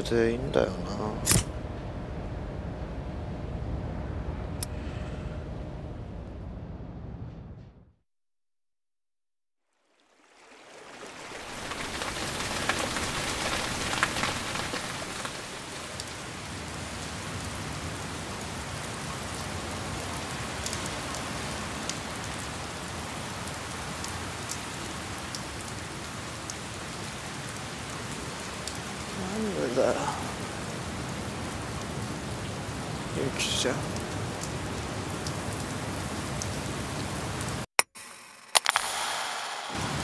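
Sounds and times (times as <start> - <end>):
heavy rain falling: 9.8 - 37.7, 39.1 - 40.0
raindrop taps: 11.3 - 16.3.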